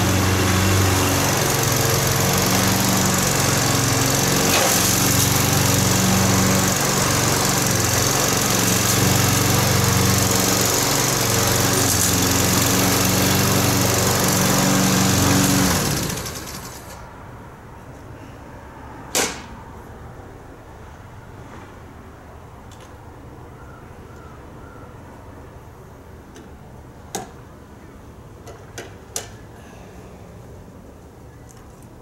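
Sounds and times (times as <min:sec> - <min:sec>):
small engine running: 0:00.0 - 0:17.0.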